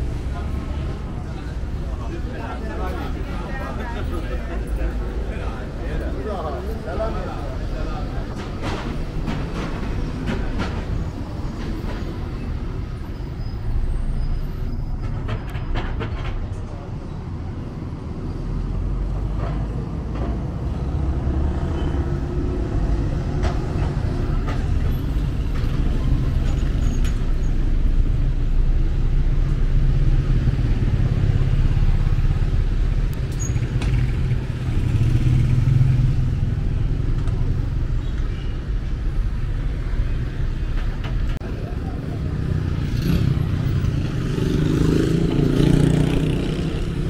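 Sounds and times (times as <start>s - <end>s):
city street traffic rumble: 0.0s - 47.0s.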